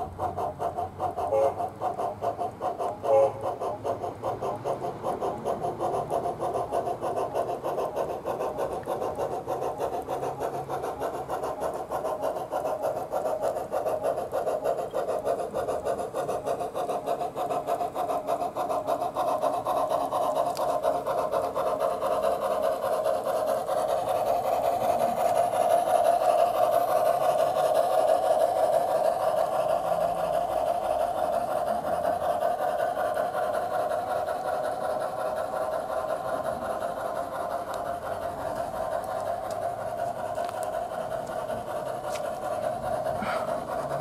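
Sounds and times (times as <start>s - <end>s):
model steam engine chuffing: 0.0s - 44.0s.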